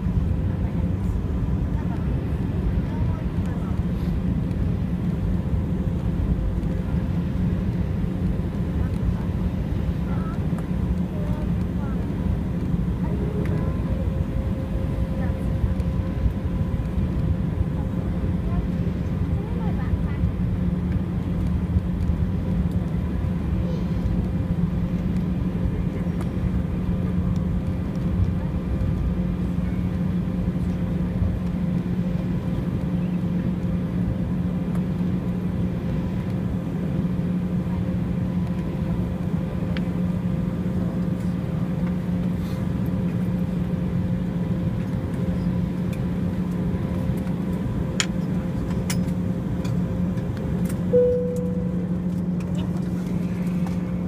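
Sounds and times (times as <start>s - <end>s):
engine and cabin systems hum: 0.0s - 54.0s
jet airliner cabin rumble: 0.0s - 54.0s.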